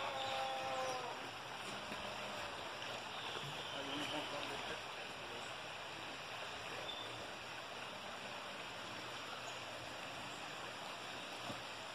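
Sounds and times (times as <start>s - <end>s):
creek running over stones: 0.0s - 11.9s.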